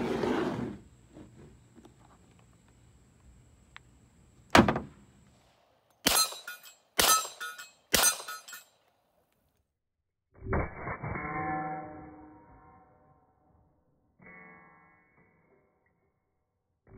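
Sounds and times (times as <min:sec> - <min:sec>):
pistol shots echoing: 0:06.0 - 0:08.6.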